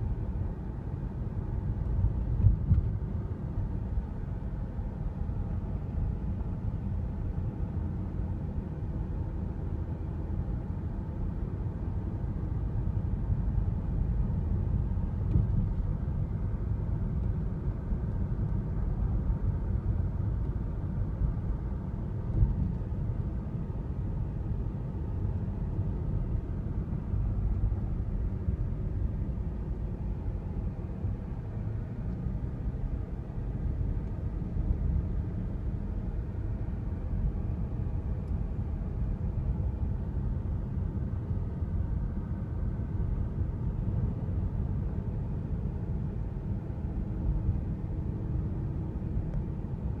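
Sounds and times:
car engine and tyres rumbling: 0.0 - 50.0.

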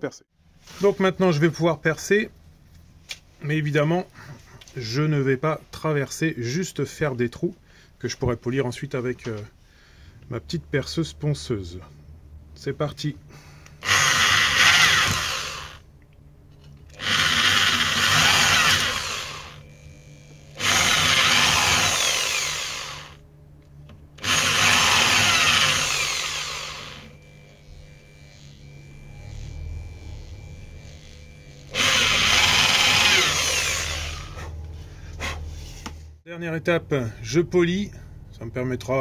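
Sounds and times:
electric drill boring wood: 13.8 - 15.8, 16.9 - 23.2, 24.2 - 34.4.

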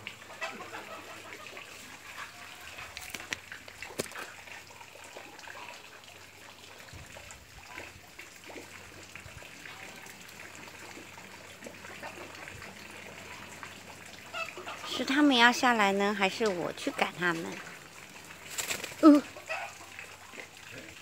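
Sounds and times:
water trickling into pond: 0.0 - 21.0.

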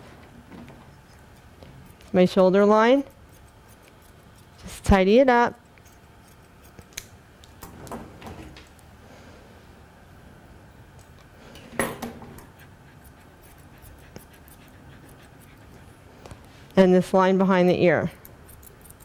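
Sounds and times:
grooming shears snipping: 0.6 - 2.3, 2.9 - 4.9, 5.7 - 7.7, 12.4 - 16.4.

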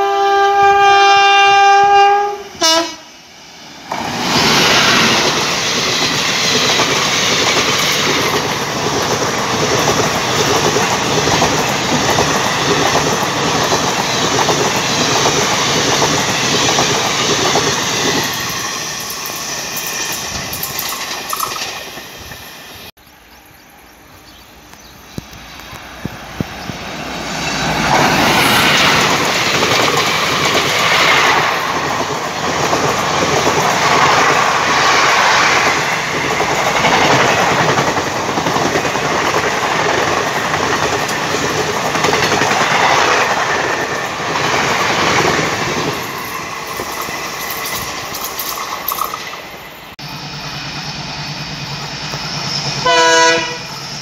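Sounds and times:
train passing at speed: 0.0 - 54.0
wheels clattering over rail joints: 3.9 - 22.4, 35.6 - 49.6.

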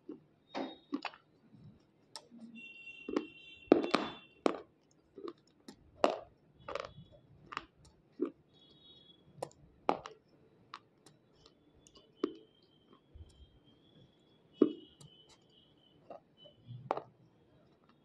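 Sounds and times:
crunching chewing: 4.5 - 8.8.

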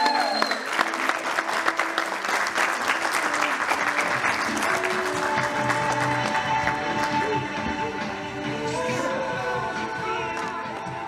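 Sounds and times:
audience applauding: 0.0 - 7.4
music playing: 0.0 - 11.0.

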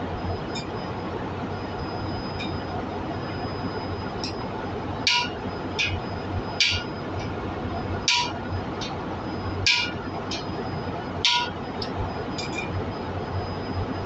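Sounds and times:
hammer striking metal: 5.1 - 6.0, 6.6 - 6.9, 8.1 - 8.4, 9.6 - 10.0, 11.2 - 11.6.

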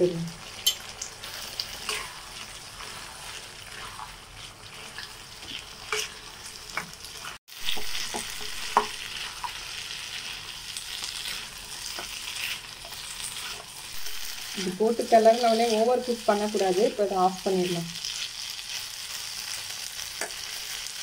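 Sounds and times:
potatoes sizzling in a pan: 0.0 - 21.0
spatula scraping and tapping: 1.7 - 4.1, 4.8 - 9.6, 11.9 - 13.8.

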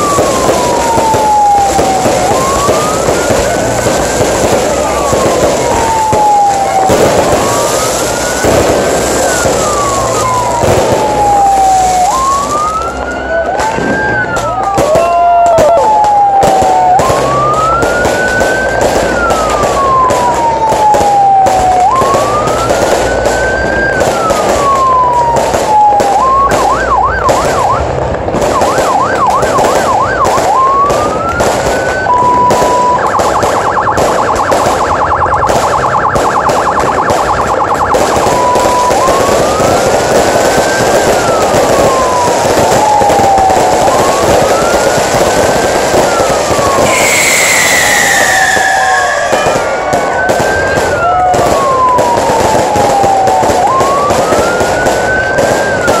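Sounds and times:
electronic siren wailing: 0.0 - 56.0
fireworks crackling and banging: 0.0 - 56.0.

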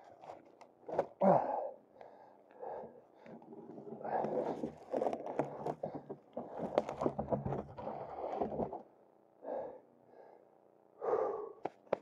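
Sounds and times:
person breathing hard: 1.2 - 3.4, 9.4 - 11.8.

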